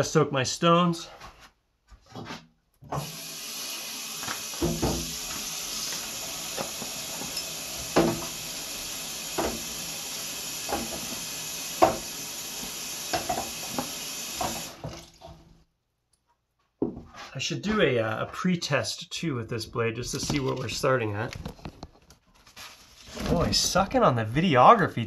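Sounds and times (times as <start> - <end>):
faucet running into sink: 3.0 - 15.4
knocks and clunks: 4.6 - 5.2.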